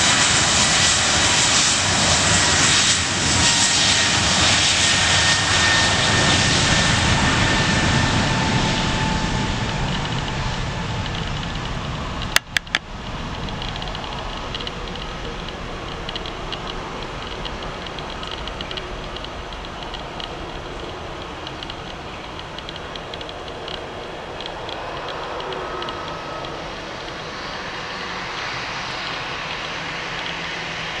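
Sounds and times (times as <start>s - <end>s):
jet engines at takeoff power: 0.0s - 31.0s.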